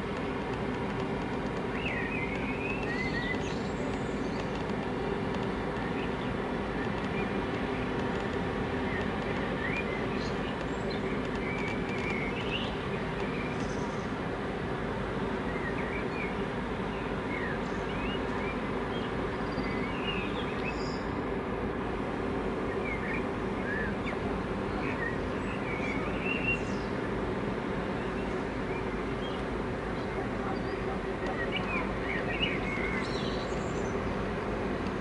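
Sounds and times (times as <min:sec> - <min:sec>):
small birds chirping: 0:00.0 - 0:14.2, 0:15.4 - 0:21.3, 0:22.6 - 0:27.2, 0:27.8 - 0:35.0
ship low rumble and hum: 0:00.0 - 0:35.0.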